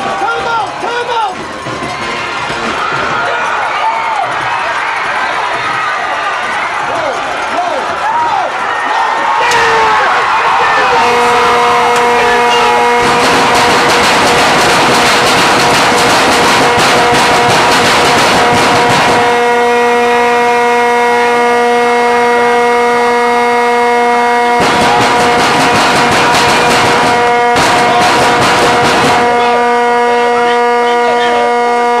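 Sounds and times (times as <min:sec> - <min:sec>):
crowd cheering and clapping: 0:00.0 - 0:23.4, 0:24.4 - 0:32.0
steady horn-like note: 0:09.4 - 0:32.0.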